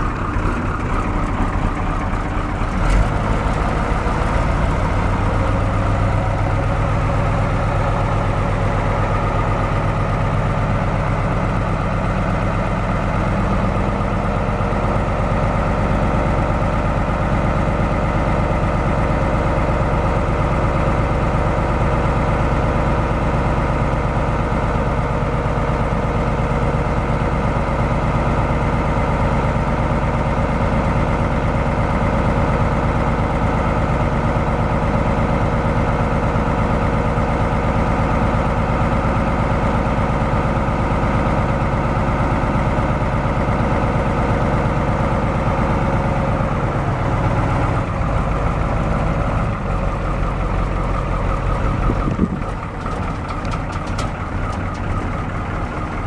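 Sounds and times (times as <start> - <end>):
diesel truck engine idling: 0.0 - 56.0.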